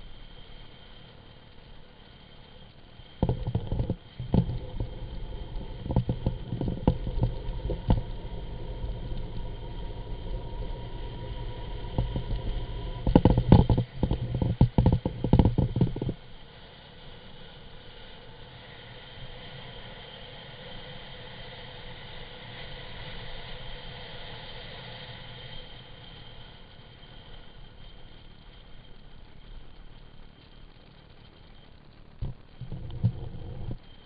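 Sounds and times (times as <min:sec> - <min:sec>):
wind buffeting rumble: 0:03.1 - 0:16.3, 0:32.2 - 0:34.0.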